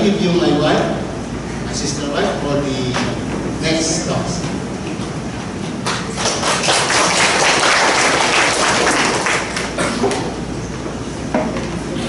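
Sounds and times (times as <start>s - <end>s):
audience applauding: 5.8s - 10.4s.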